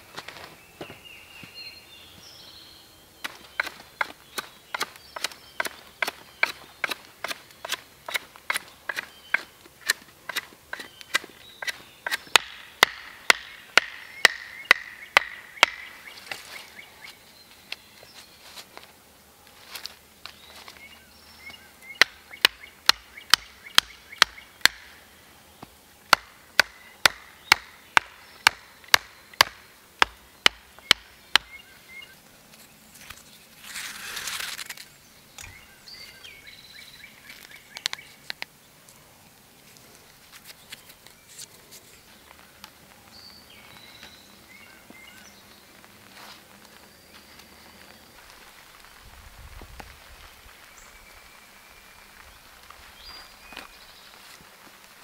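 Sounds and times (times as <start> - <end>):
brief rustle: 32.5 - 35.5.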